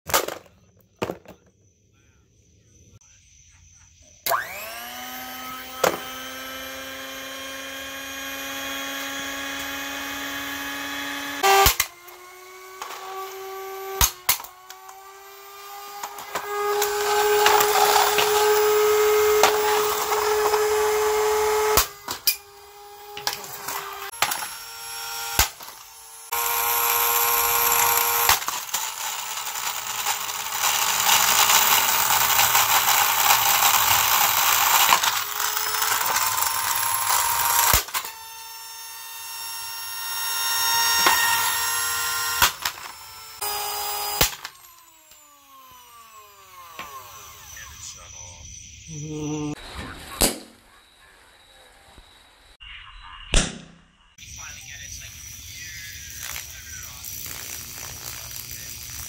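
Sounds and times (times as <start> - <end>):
hand mixer motor whining: 4.2 - 48.0, 55.2 - 59.0
golf club hitting mixer: 4.3 - 47.5.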